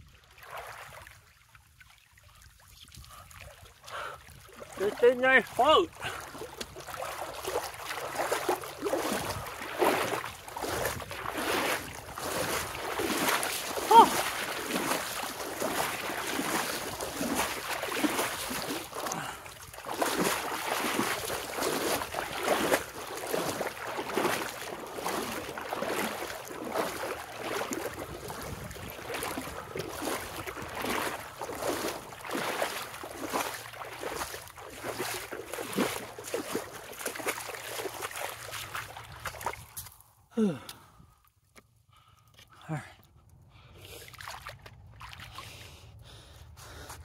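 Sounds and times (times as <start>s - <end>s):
person swimming and wading: 0.0s - 42.6s, 43.5s - 47.0s
river water rushing: 4.6s - 19.2s, 19.8s - 27.9s.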